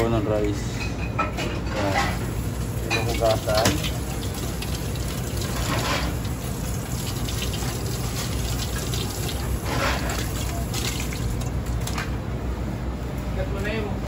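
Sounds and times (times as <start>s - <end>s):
tap water running into sink: 2.5s - 12.0s
water splashing off crab shell: 3.5s - 11.9s.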